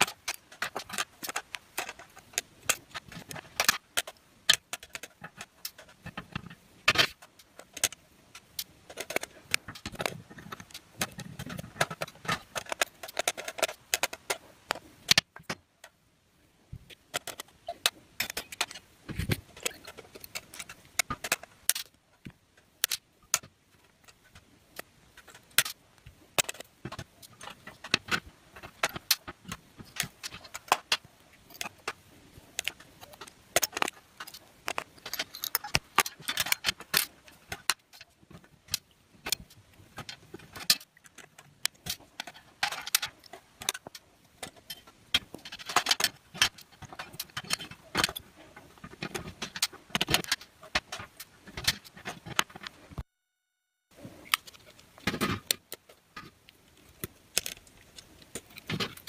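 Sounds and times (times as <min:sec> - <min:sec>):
small metal parts clinking: 0:32.6 - 0:48.2.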